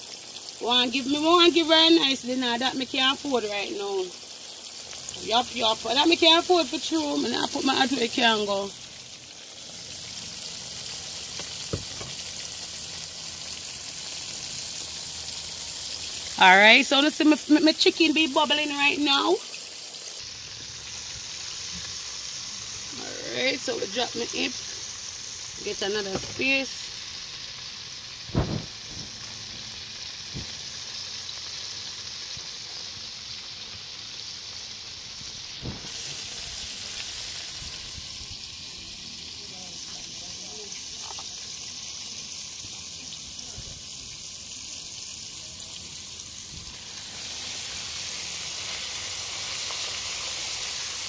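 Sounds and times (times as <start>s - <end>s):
oil sizzling while deep-frying: 0.0s - 51.0s
knock: 11.7s - 12.1s, 28.3s - 29.1s.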